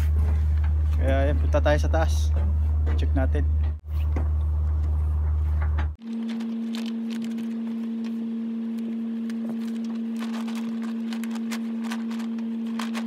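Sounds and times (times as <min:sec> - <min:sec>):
machinery hum: 0:00.0 - 0:13.0.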